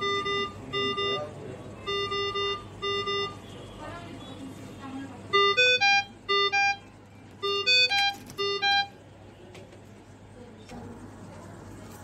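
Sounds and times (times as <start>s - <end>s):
ventilator alarm beeps rising pitch: 0.0s - 3.6s, 5.3s - 9.0s.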